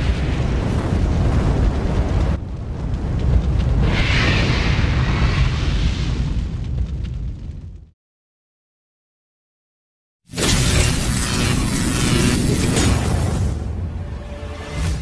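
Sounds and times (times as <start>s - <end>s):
deep rumble: 0.0s - 8.0s.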